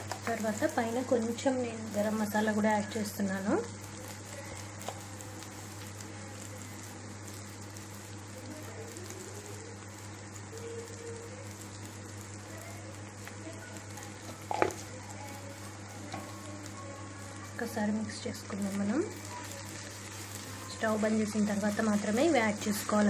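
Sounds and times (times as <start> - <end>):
curry sizzling in pan: 0.0 - 23.0.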